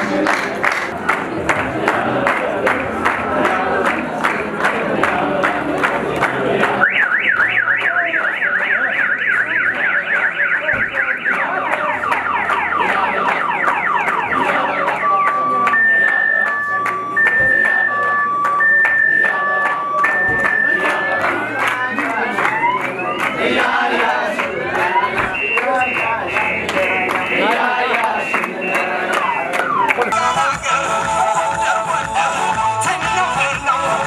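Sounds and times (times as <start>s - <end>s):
crowd noise: 0.0s - 34.0s
electronic siren warbling and whooping: 11.9s - 23.4s.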